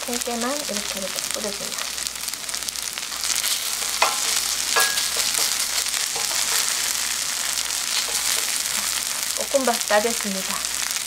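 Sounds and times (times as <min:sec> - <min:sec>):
rice sizzling in a pan: 0:00.0 - 0:11.0
spatula scraping a pan: 0:03.2 - 0:09.3.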